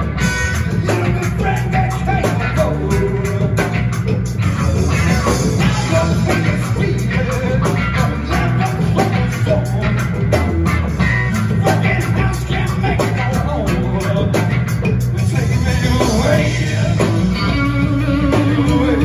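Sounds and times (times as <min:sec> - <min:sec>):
electric guitar lead lines: 0:00.0 - 0:19.0
rock band playing: 0:00.0 - 0:19.0.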